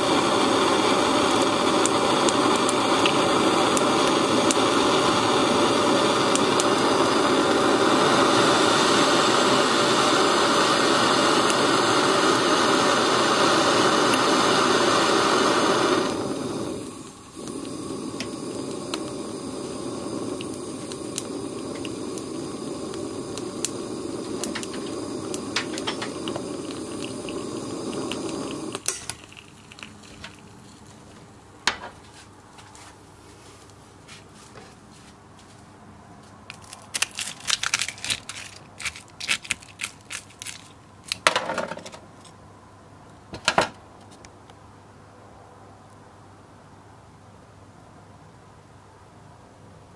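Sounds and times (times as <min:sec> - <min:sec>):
hot egg ticking and popping: 0:00.0 - 0:31.0, 0:36.5 - 0:41.5
blow torch flame hissing: 0:00.0 - 0:31.4
egg shell crackling: 0:17.0 - 0:31.0, 0:36.5 - 0:41.9.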